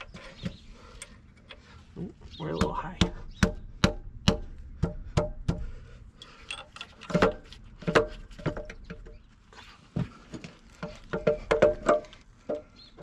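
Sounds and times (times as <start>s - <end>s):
metallic clicks of hand tools: 6.2s - 7.3s.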